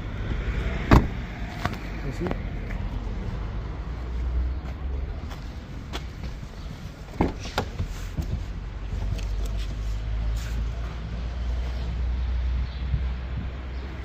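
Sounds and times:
car door latch clunk: 0.9s - 1.2s.

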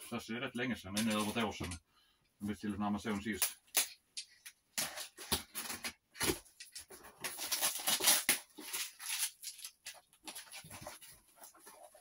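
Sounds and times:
knife slitting packing tape: 7.2s - 10.4s.

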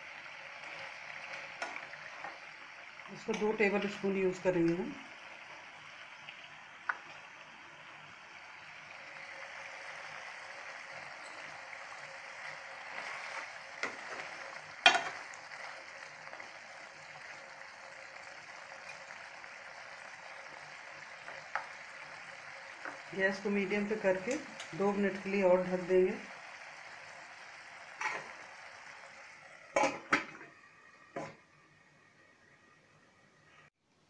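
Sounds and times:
curry simmering and sizzling: 0.0s - 33.8s.

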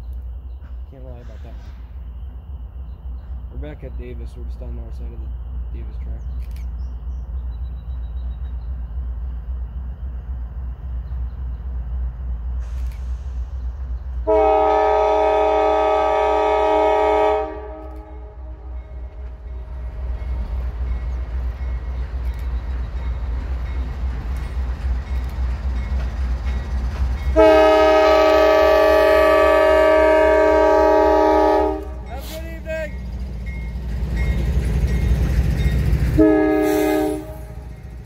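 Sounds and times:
train rumble: 0.0s - 38.0s
locomotive air horn: 14.3s - 18.8s, 27.4s - 32.4s, 36.2s - 37.7s.

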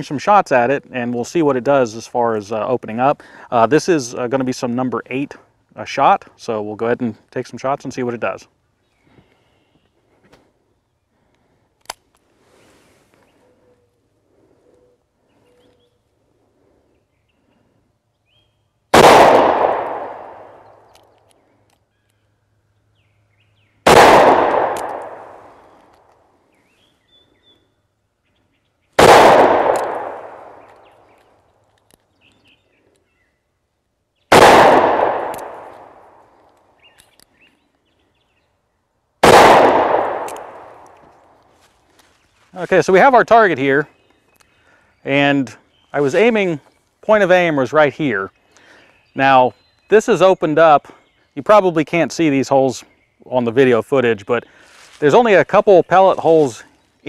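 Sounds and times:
revolver gunshots: 18.9s - 20.9s, 23.8s - 25.6s, 29.0s - 31.0s, 34.3s - 36.2s, 39.2s - 41.0s.

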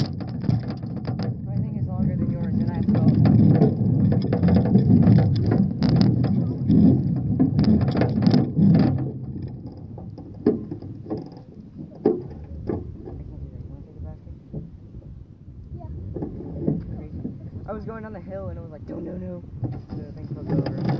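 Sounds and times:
rattles and knocks in basket: 0.0s - 13.3s, 19.6s - 20.9s
bicycle rolling rumble: 0.0s - 20.9s.

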